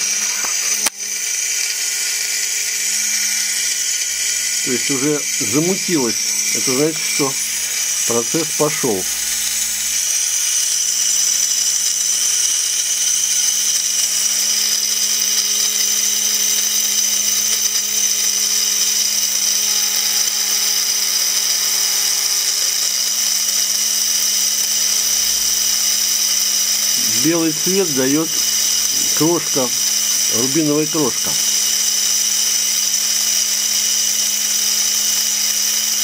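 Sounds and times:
electric drill grinding: 0.0s - 36.0s.

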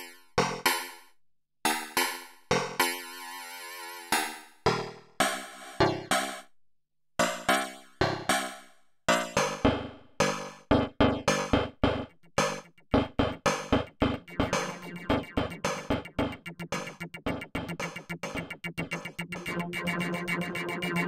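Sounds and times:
synthesizer playing short notes: 14.1s - 21.0s.

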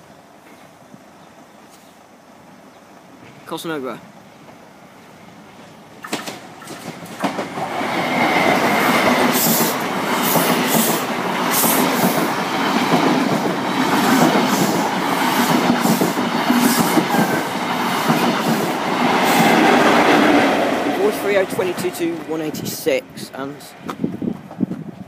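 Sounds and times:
train passing: 2.4s - 25.0s
wheels clacking over track: 6.0s - 22.9s.

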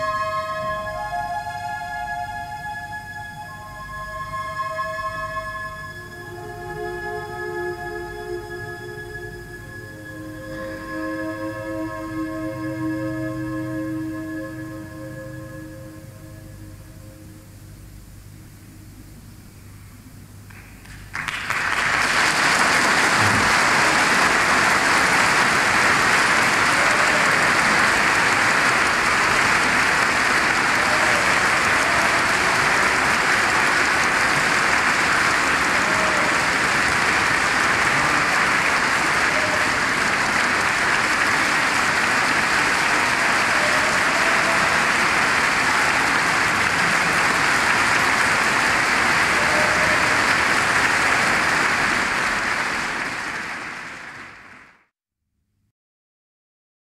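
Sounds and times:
audience applauding: 0.0s - 1.8s, 20.5s - 54.9s.

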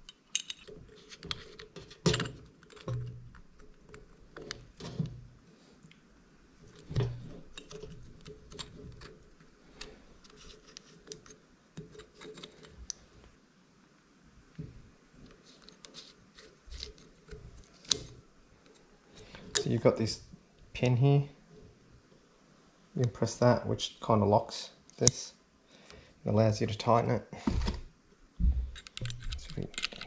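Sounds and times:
hard plastic parts clicking: 28.5s - 30.0s.

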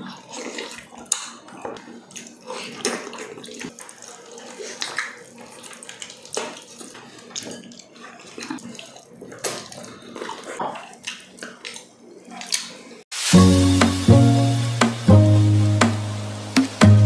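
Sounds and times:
wet chewing and lip-smacking: 0.0s - 12.8s.

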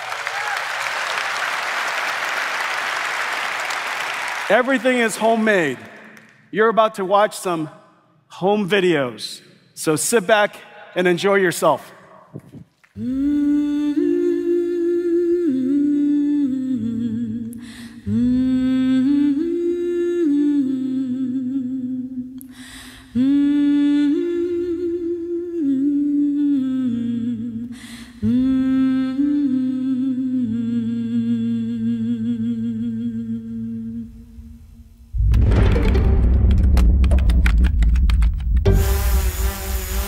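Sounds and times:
person humming melody: 13.0s - 22.5s.

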